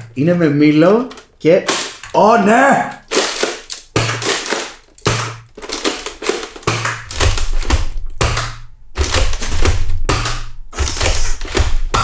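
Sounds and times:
darts belt rattling: 3.0 - 8.2.

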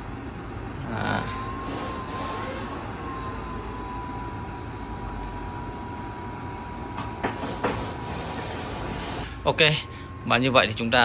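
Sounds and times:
thin steady whine: 0.0 - 11.0
equipment whirring hiss: 0.9 - 3.1, 7.0 - 10.2.

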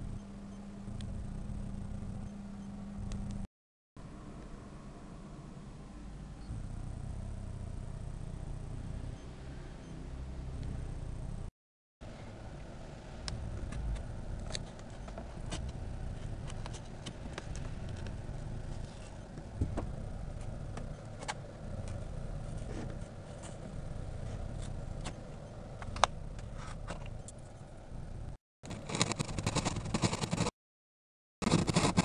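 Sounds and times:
low steady rumble: 0.0 - 30.1
knife clicks and scratches: 28.7 - 30.5, 31.5 - 32.0.

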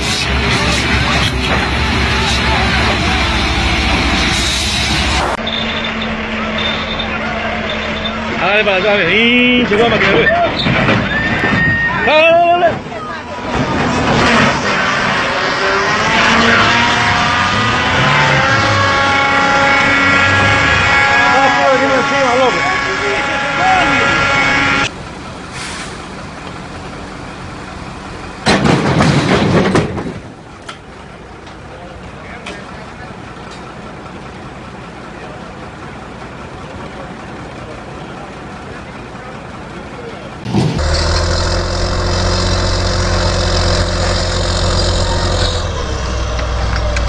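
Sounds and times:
engine rumble: 0.0 - 11.5, 12.5 - 47.0
excavator crashing onto ground: 28.4 - 30.4.

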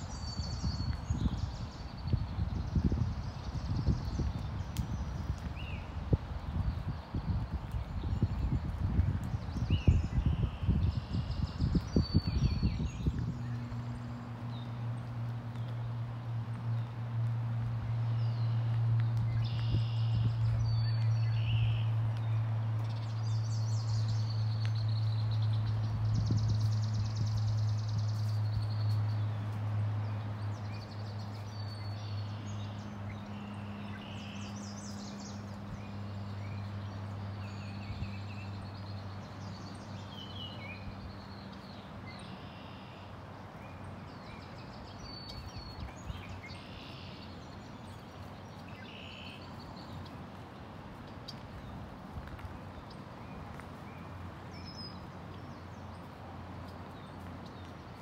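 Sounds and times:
small birds singing: 0.0 - 58.0.

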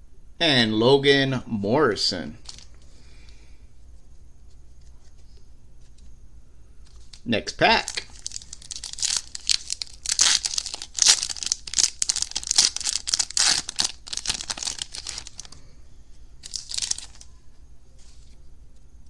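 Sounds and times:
foil wrapper tearing and crinkling: 2.4 - 2.7, 7.8 - 15.6, 16.4 - 17.3.

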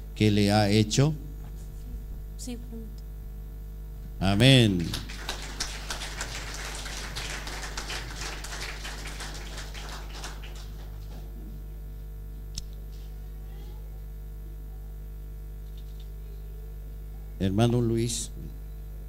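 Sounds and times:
scattered applause: 4.6 - 11.4.

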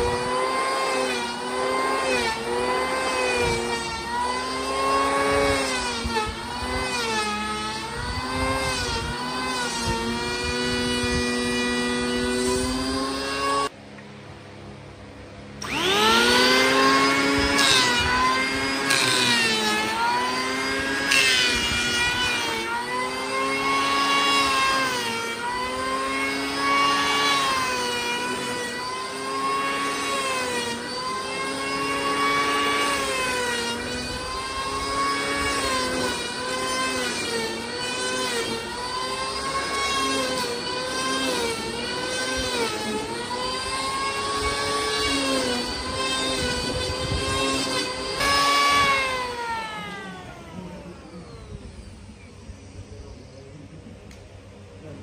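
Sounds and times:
electric hand planer cutting wood: 0.0 - 13.8, 15.6 - 52.2.

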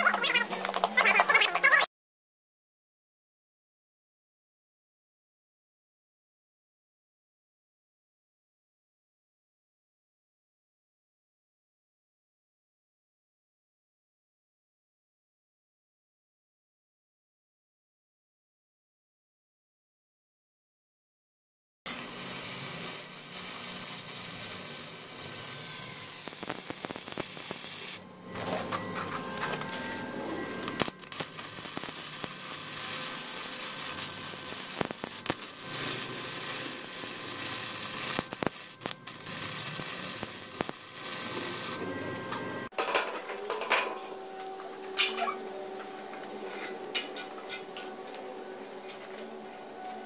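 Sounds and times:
arc welding crackling sizzle: 21.9 - 28.7, 30.0 - 50.0.

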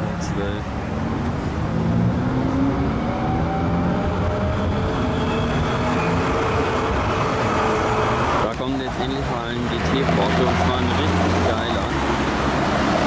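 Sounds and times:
vehicle engine running: 8.4 - 12.6.

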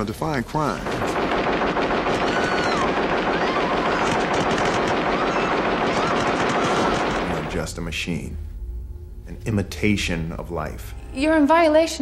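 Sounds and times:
rapid automatic gunfire: 0.8 - 7.6.

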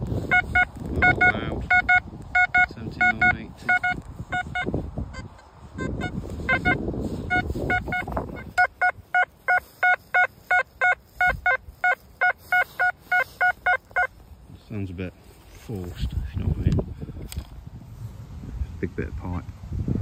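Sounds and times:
metal detector beeps: 0.2 - 14.2.

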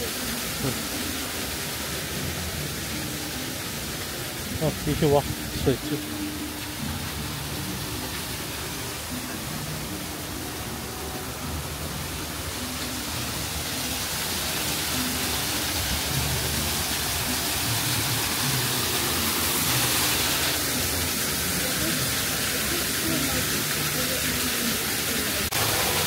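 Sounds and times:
running water rushing: 0.0 - 26.0
murmur of voices: 19.2 - 26.0.

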